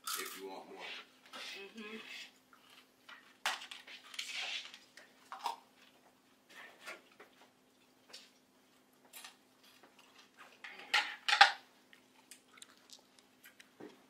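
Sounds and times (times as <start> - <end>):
faint steady hum: 0.0 - 14.0
dishes and cutlery clattering: 10.6 - 11.6.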